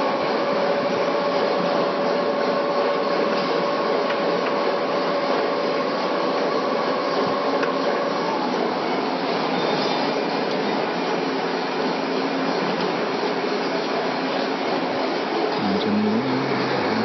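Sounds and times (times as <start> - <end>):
refrigeration unit humming: 0.0 - 17.0.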